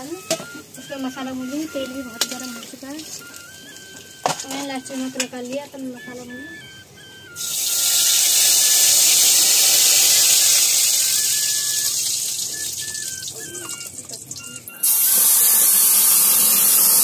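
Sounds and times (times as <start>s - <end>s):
paste sizzling in hot oil: 7.4s - 12.0s, 14.7s - 17.0s.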